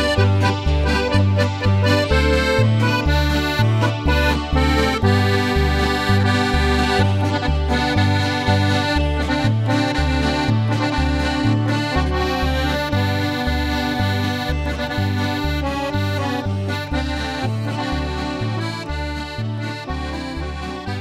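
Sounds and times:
oom-pah bass: 0.0 - 21.0
polka music on accordion: 0.0 - 21.0.

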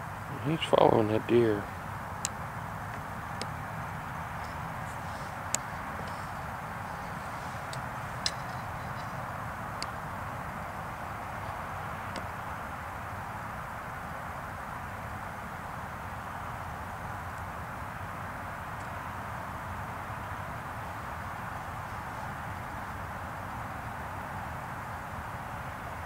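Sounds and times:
vehicle engine idling: 0.0 - 12.2.

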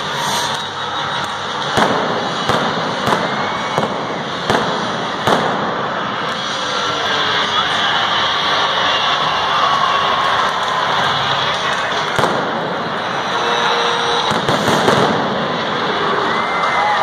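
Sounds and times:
fireworks bangs: 0.0 - 6.6, 10.4 - 16.3.

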